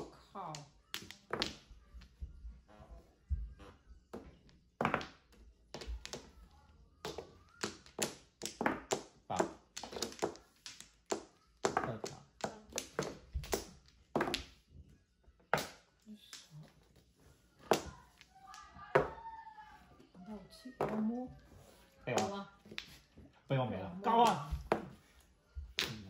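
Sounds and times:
tiles clacking on table: 4.8 - 14.6, 24.1 - 26.0.

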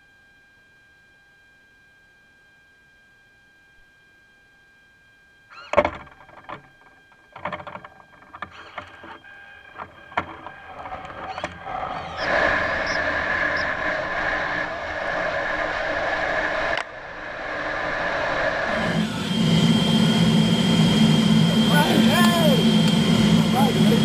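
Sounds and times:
thin steady whine: 0.0 - 24.0
rushing air noise: 12.2 - 24.0.

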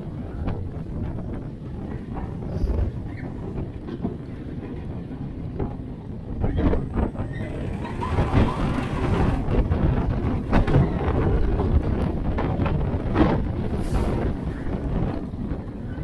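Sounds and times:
roller coaster rumbling on track: 0.0 - 16.0
wind buffeting microphone: 0.0 - 16.0
short clatters: 6.4 - 11.1.

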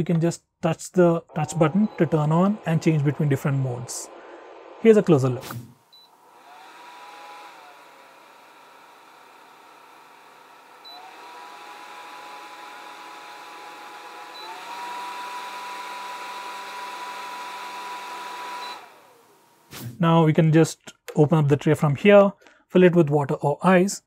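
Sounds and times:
air cooler fan whirring: 6.2 - 19.2.

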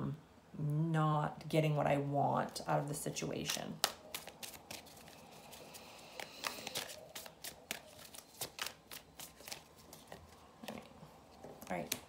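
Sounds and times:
cards being shuffled: 3.5 - 12.0.

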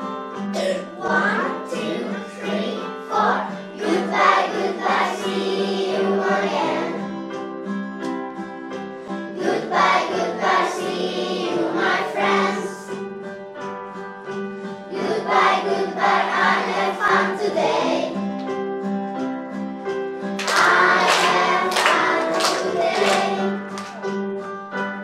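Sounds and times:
recorded song with instrumental backing: 0.0 - 25.0
children singing: 0.6 - 7.1, 9.4 - 12.9, 14.9 - 18.2, 20.4 - 23.7.

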